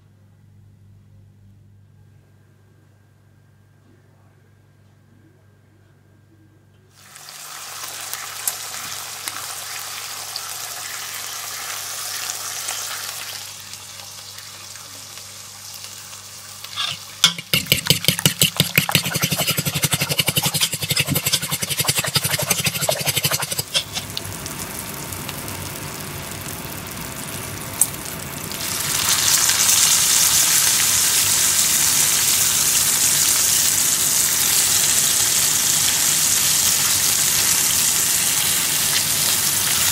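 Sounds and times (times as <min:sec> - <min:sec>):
bacon sizzling in a frying pan: 0:07.0 - 0:39.9
eggs being beaten in a bowl: 0:16.8 - 0:24.1.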